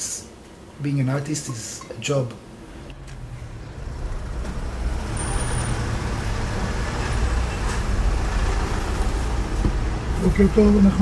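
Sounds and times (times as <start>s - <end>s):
car engine and road noise: 2.5s - 11.0s.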